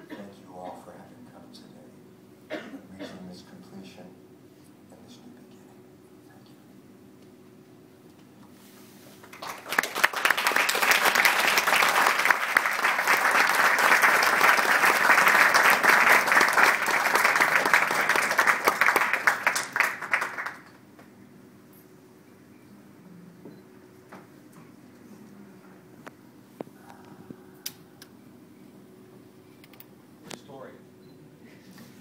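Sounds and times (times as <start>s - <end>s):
audience applauding: 9.2s - 20.8s.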